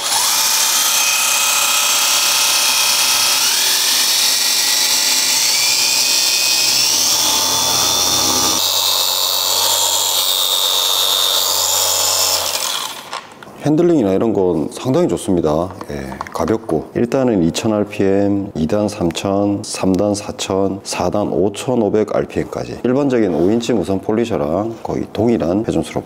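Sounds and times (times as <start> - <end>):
electric polisher motor whining: 0.0 - 13.2.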